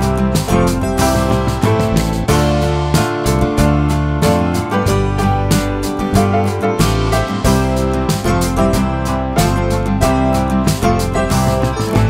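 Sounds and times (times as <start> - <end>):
light tune on plucked strings: 0.0 - 12.0.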